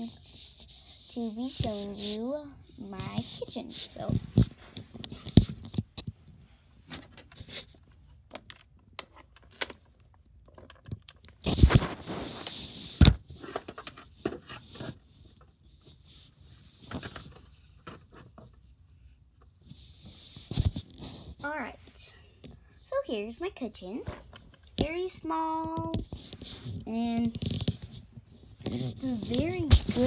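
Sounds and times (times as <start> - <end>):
rustling scrape: 0.0 - 7.8, 11.4 - 18.7, 19.6 - 22.1, 24.0 - 30.0.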